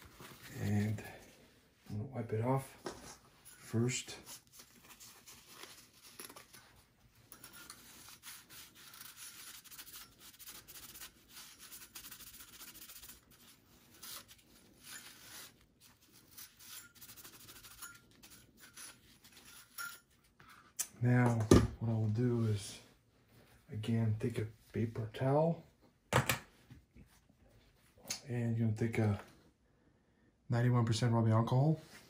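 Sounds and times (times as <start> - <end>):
paper towel rubbing metal: 7.3 - 19.8.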